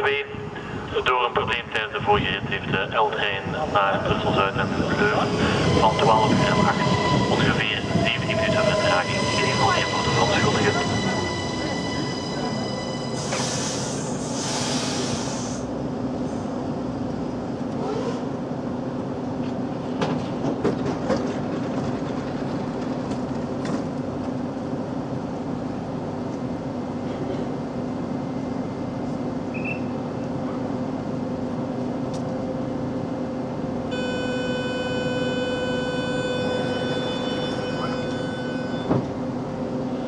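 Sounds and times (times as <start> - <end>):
train electric hum: 0.0 - 40.0
air hissing: 13.2 - 15.7.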